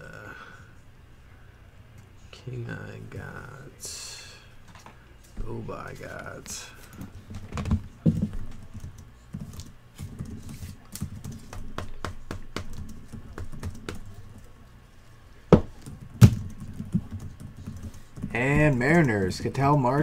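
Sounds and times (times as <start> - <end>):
keyboard typing: 7.3 - 14.5, 15.8 - 20.0.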